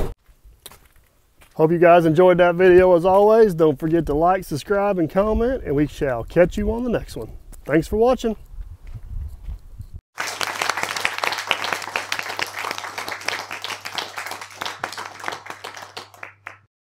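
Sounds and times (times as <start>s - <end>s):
crowd applause: 10.1s - 16.7s.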